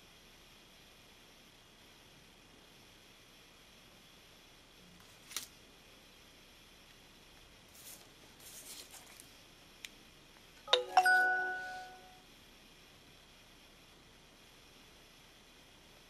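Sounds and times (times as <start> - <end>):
card rustling: 7.7 - 9.3
phone chime: 10.7 - 12.2.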